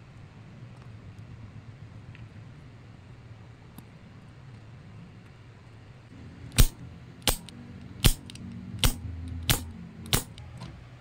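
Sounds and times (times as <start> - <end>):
sharp clicks: 6.5 - 10.4.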